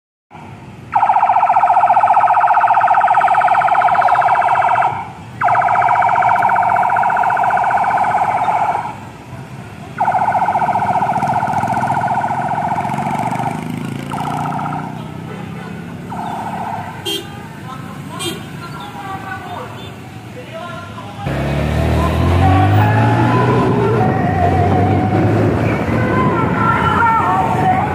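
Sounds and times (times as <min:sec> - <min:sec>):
rumble of vehicle engines: 0:00.3 - 0:27.9
pulsing electronic siren: 0:00.9 - 0:09.0, 0:10.0 - 0:15.0, 0:16.1 - 0:17.0, 0:22.0 - 0:26.8.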